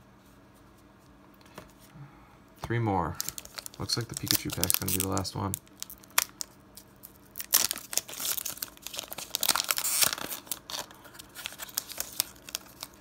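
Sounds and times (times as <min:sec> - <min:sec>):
cards rustling: 0:03.1 - 0:13.0
foil wrapper crinkling and tearing: 0:03.1 - 0:13.0.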